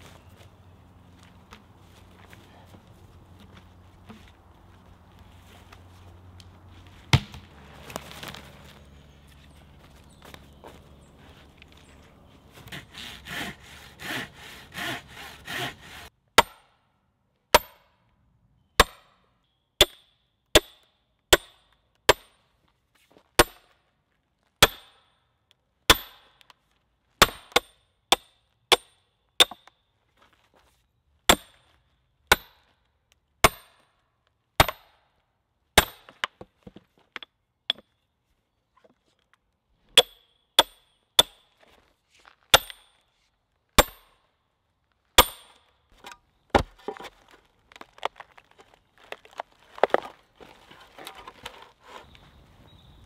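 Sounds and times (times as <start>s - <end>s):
sledgehammer striking steel wedges: 39.9s - 41.5s, 43.8s - 44.1s, 45.2s - 47.0s.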